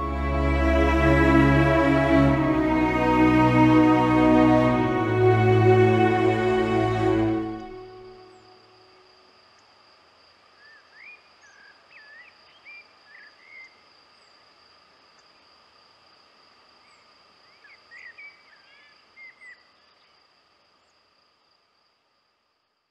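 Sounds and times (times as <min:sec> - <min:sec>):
songbird singing: 0:00.0 - 0:09.8, 0:10.5 - 0:14.4, 0:16.8 - 0:20.2
insect trill: 0:00.0 - 0:22.9.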